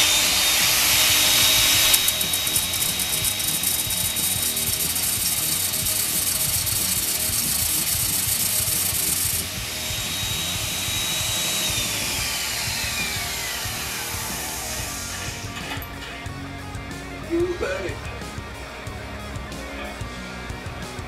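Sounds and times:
sanding disc scraping on steel: 0.0s - 16.3s
electric drill turning: 0.0s - 17.0s
angle grinder whine: 0.0s - 21.0s.

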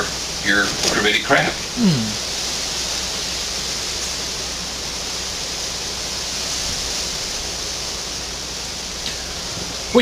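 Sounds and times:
steady hiss: 0.0s - 10.0s.

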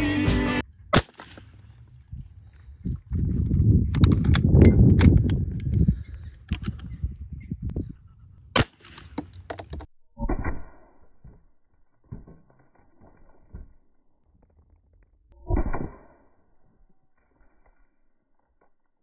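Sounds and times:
air pistol shot: 0.9s - 1.5s, 8.6s - 9.2s.

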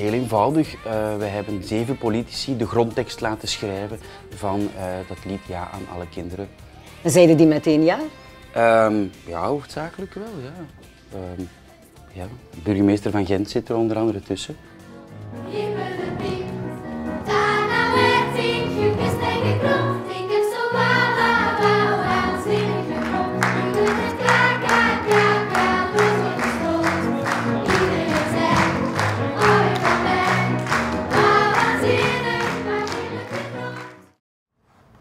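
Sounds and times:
children singing pop song: 0.0s - 10.3s, 15.3s - 34.2s
instrumental backing with beat: 14.8s - 33.8s.

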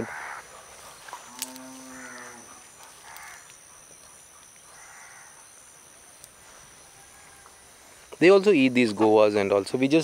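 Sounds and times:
hoarse crow caws: 0.0s - 0.5s, 1.4s - 3.5s, 4.7s - 5.4s
drawn-out animal call: 1.3s - 5.5s.

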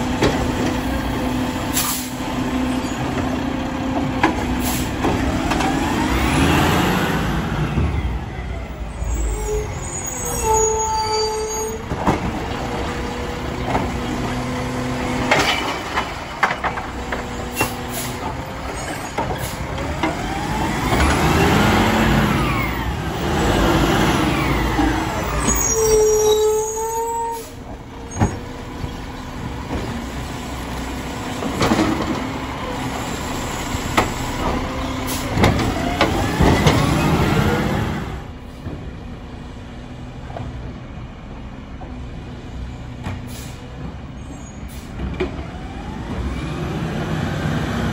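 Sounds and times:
truck engine revving: 0.0s - 8.0s, 12.2s - 25.7s, 27.7s - 38.3s, 45.3s - 47.9s
brake squeal: 1.7s - 3.2s, 8.2s - 11.9s, 17.3s - 19.7s, 24.3s - 29.2s, 43.3s - 45.0s.

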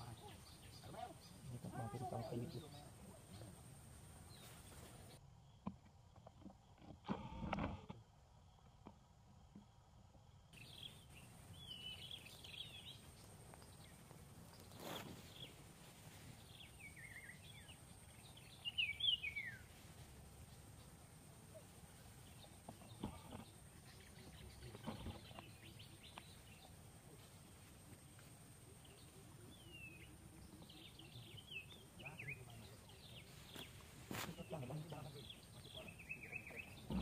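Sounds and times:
birds chirping: 0.0s - 7.0s, 10.5s - 37.0s.

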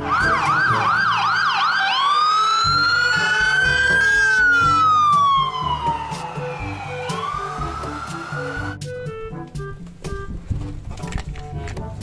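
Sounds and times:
fire engine siren: 0.0s - 8.9s
low background music: 0.0s - 12.0s.

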